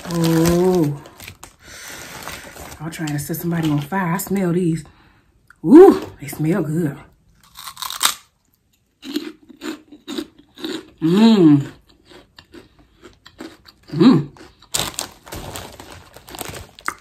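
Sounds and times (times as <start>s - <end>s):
person crunching pork rinds: 0.0s - 3.9s, 7.4s - 17.0s
person humming with enjoyment: 11.0s - 11.8s, 13.9s - 14.4s.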